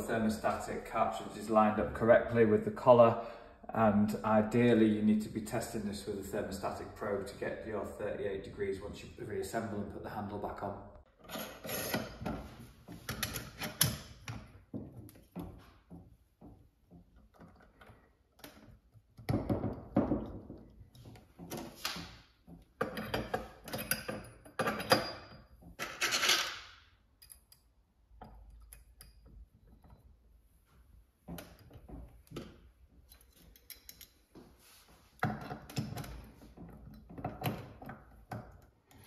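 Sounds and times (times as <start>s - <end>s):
metal parts clicking and scraping: 11.2s - 12.2s, 22.8s - 30.1s, 33.0s - 34.3s.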